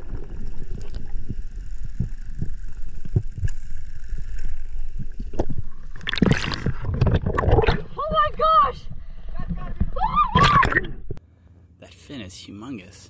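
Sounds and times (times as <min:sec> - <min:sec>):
muffled underwater rumble: 0:00.0 - 0:08.0.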